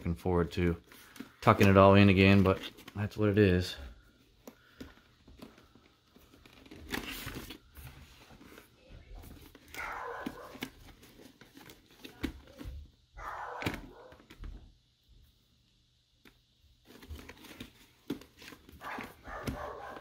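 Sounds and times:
helmet liner rustling and crinkling: 0.6 - 12.7, 16.8 - 20.0
dog barking: 9.8 - 10.6, 13.2 - 14.2, 18.8 - 20.0.

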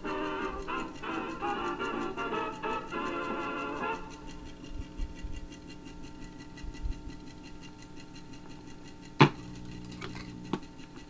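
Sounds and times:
faint mechanical ticking: 0.0 - 11.0
amplifier hum: 9.2 - 10.7.

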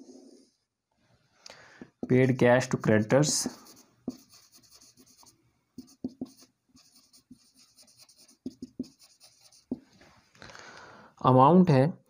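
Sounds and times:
marker writing on whiteboard: 2.0 - 10.0
marker tip taps: 5.9 - 6.4.

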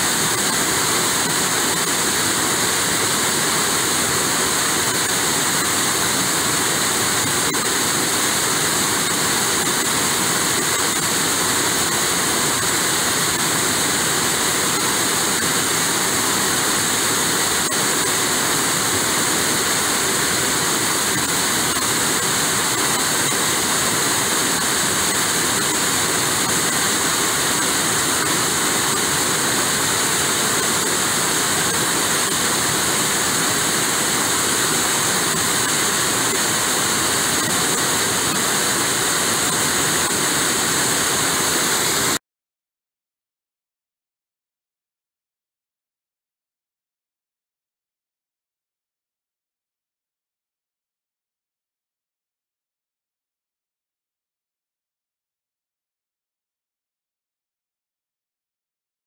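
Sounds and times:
rushing river water: 0.0 - 42.2.

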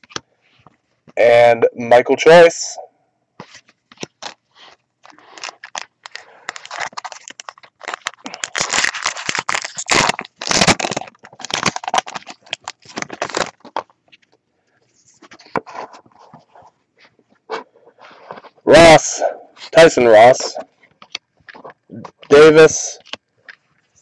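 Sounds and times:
cards rustling: 3.4 - 18.6, 19.6 - 24.0
wrapper crinkling and tearing: 3.5 - 14.4.

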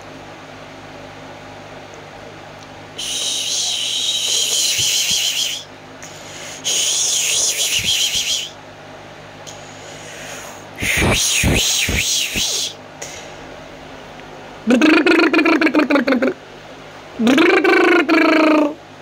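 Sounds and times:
high hissing whistle: 3.0 - 8.6, 9.8 - 12.8.

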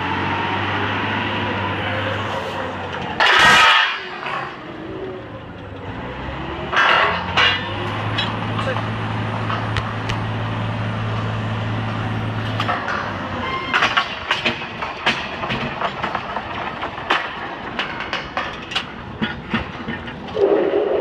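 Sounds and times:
rig engine humming: 0.0 - 21.0
metal pipe clanks and knocks: 6.7 - 9.8, 12.6 - 20.2.

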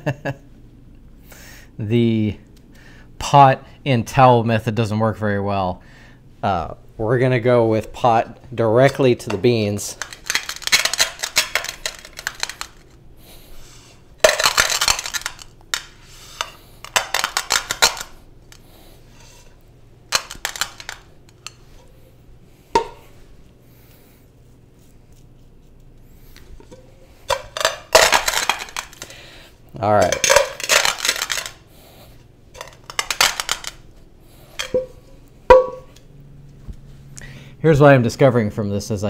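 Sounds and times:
coffee beans crunching and cracking: 9.2 - 18.9, 20.1 - 21.6, 27.3 - 33.9.

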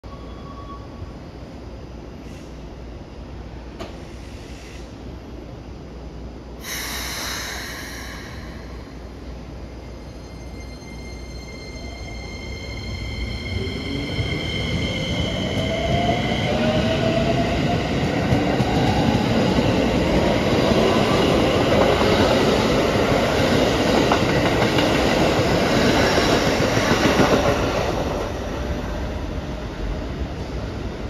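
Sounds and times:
train wheels on rails: 3.7 - 4.8, 13.5 - 31.0.

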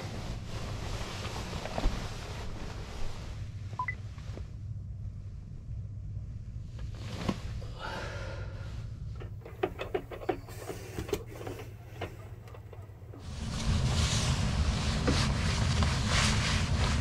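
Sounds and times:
bedding rustling: 0.0 - 4.4, 6.6 - 7.7, 9.1 - 17.0
steady low hum: 0.0 - 17.0
privacy blind clicking and rattling: 9.2 - 13.3.

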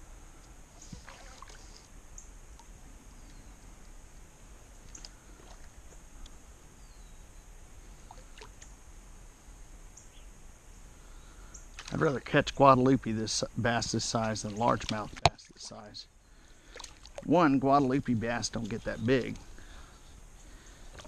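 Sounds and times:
small water splashes: 0.8 - 1.9, 8.0 - 8.7, 11.7 - 12.2, 14.2 - 15.9, 16.5 - 17.4
high insect drone: 17.6 - 21.0.

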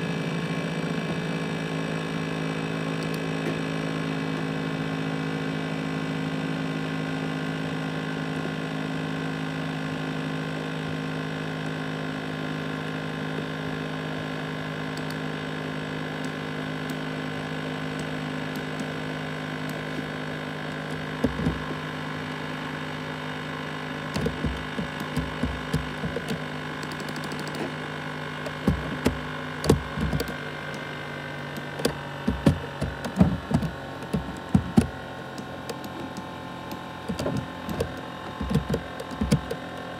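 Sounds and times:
laptop cooling fan humming: 9.2 - 39.9
irregular clicks and knocks: 21.2 - 21.7, 24.1 - 27.8, 28.4 - 30.4, 31.5 - 39.9.

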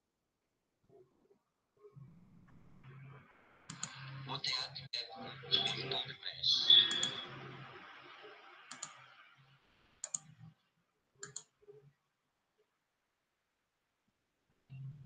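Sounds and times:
computer mouse clicking: 3.7 - 4.0, 6.9 - 7.2, 8.7 - 9.0, 10.0 - 10.4, 11.2 - 11.5.

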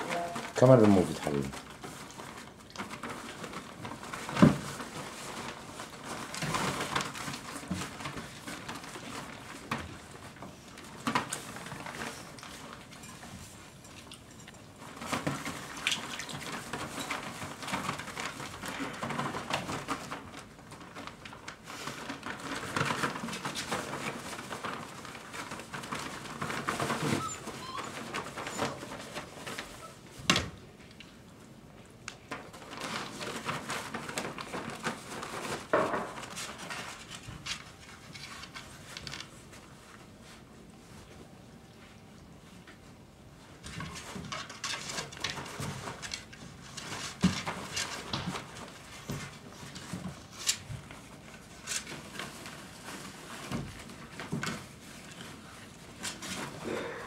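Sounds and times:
paper bedding rustling: 0.0 - 13.6, 32.3 - 42.6, 43.4 - 57.0.

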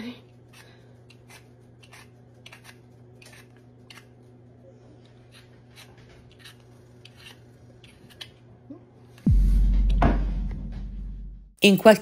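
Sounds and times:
peeler scraping potato skin: 0.3 - 4.3, 5.1 - 8.5.

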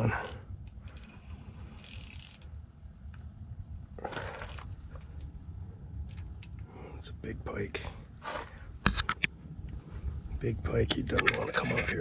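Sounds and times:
fishing reel clicking and ratcheting: 1.8 - 2.5
low rumble: 2.5 - 11.9.

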